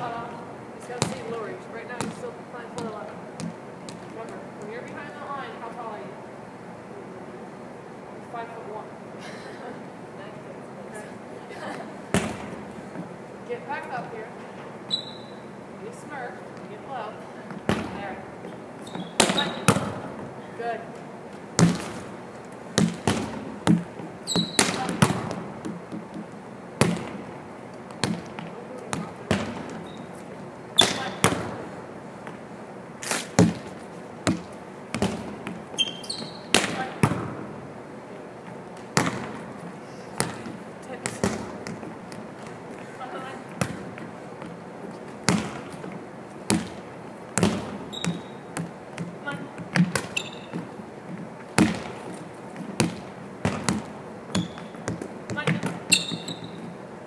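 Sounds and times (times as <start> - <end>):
volleyballs smacking and bouncing: 0.1 - 5.3, 11.7 - 14.6, 15.9 - 57.0
sneaker squeaks: 14.5 - 15.7, 17.4 - 20.1, 22.8 - 26.3, 28.0 - 31.6, 33.0 - 37.3, 38.9 - 57.0.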